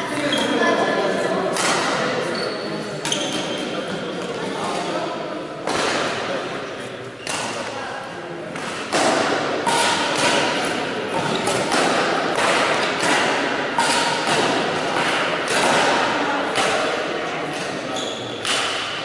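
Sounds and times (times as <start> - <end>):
rackets hitting shuttlecocks: 1.5 - 2.1, 5.6 - 6.4, 7.2 - 7.8, 8.5 - 19.0.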